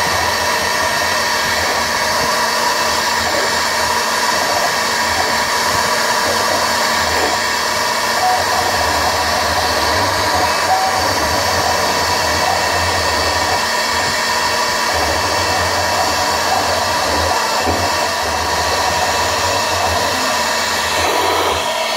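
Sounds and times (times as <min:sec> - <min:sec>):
bit cutting metal plate: 0:00.0 - 0:21.9
router spindle whining: 0:00.0 - 0:21.9.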